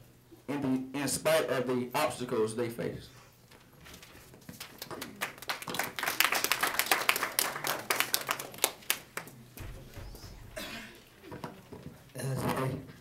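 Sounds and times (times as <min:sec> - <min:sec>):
audience applauding: 0:04.8 - 0:09.3.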